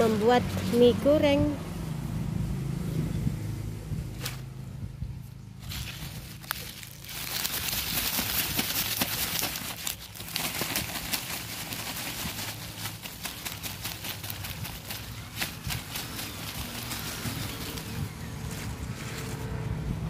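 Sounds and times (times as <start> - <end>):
leaves and stems rustling: 4.0 - 4.6, 5.2 - 19.8.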